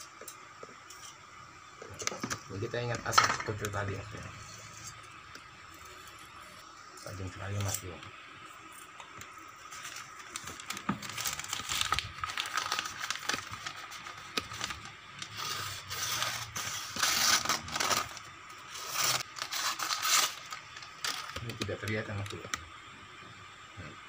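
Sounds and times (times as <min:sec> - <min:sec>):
paper crinkling and tearing: 0:09.6 - 0:22.4.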